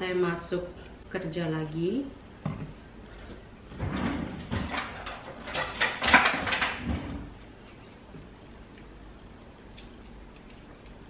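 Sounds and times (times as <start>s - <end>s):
kitchen items clattering: 2.5s - 7.8s.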